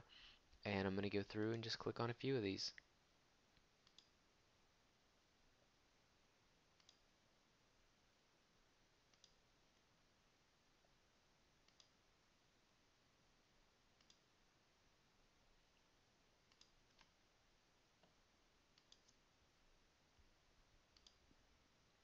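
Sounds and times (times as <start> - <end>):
faint steady hiss: 0.0 - 22.0
computer mouse clicks: 3.6 - 4.1, 6.8 - 7.0, 9.1 - 9.9, 11.6 - 12.0, 14.0 - 14.2, 16.5 - 17.2, 18.8 - 19.2, 20.9 - 21.2.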